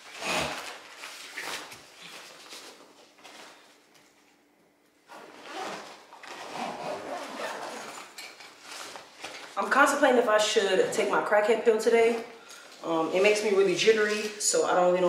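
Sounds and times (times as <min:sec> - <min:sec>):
toiletries and bag rustling: 0:00.0 - 0:04.2, 0:05.1 - 0:10.0.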